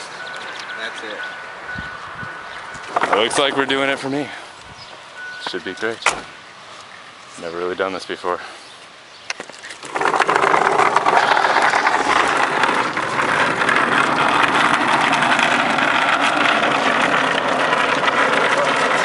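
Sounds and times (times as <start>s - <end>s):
wooden boat scraping over ground: 2.8s - 4.1s, 9.6s - 19.0s
truck engine running: 11.0s - 19.0s.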